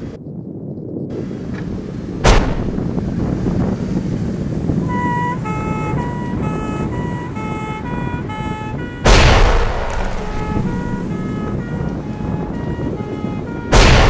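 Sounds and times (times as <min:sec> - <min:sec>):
loud explosion: 0:02.2 - 0:03.1, 0:09.0 - 0:11.3, 0:13.7 - 0:14.0
car alarm: 0:04.9 - 0:09.1, 0:09.9 - 0:14.0
low rumble: 0:07.7 - 0:12.6.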